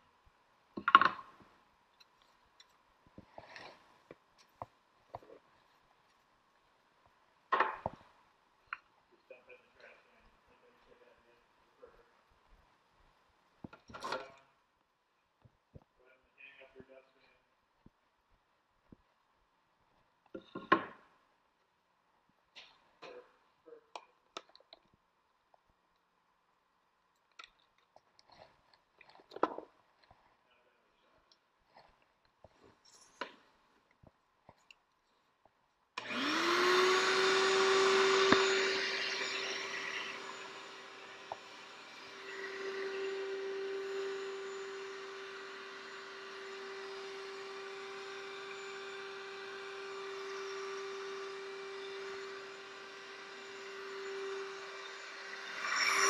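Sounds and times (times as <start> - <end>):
shop vacuum running: 36.0 - 56.0.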